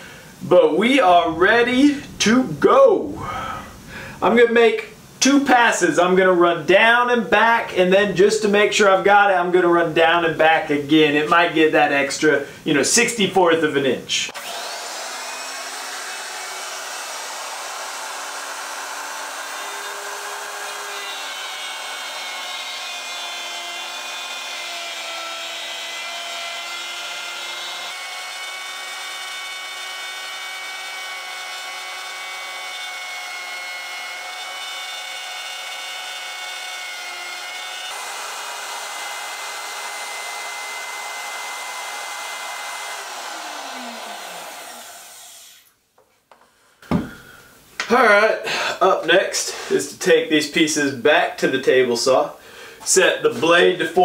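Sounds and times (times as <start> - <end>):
router whining while cutting wood: 14.3 - 45.7.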